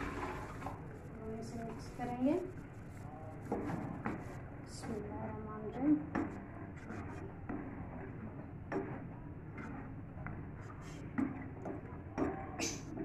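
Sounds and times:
spatula stirring thick sauce: 2.8 - 13.0
spatula scraping a pot: 6.1 - 11.6.

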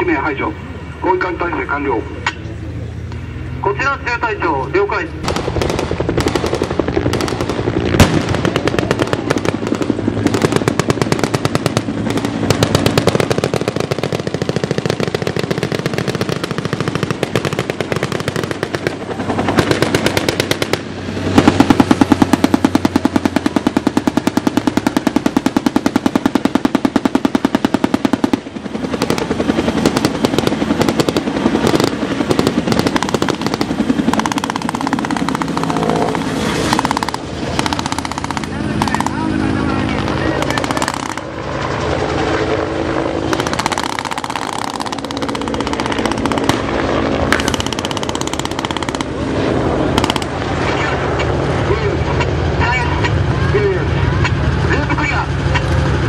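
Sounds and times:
helicopter passing overhead: 0.0 - 56.0
rapid automatic gunfire: 5.2 - 41.4, 43.2 - 49.2, 50.0 - 50.5.

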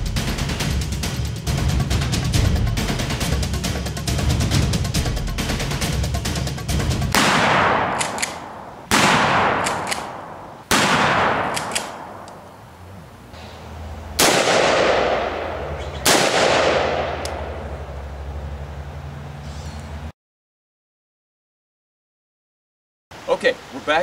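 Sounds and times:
steady low rumble: 0.0 - 20.1
loud gunshots with echo: 7.1 - 12.3, 14.2 - 17.8.

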